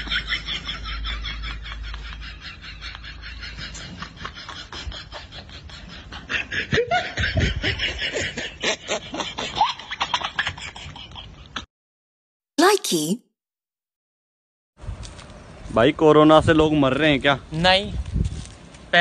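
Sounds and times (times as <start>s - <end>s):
breathy snickering laughter: 0.0s - 11.7s.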